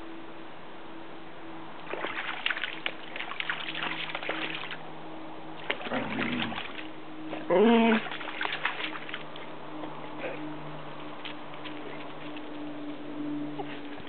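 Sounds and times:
dog splashing through water: 1.8 - 4.8, 5.5 - 9.6.

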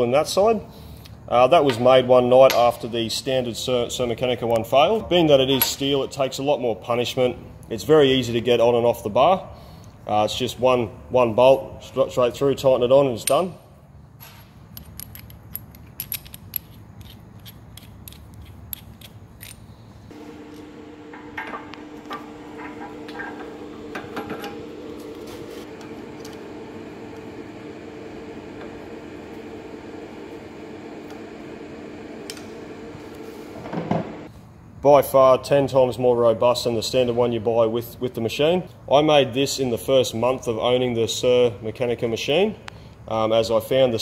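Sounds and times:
boring machine drive hum: 20.1 - 34.3.

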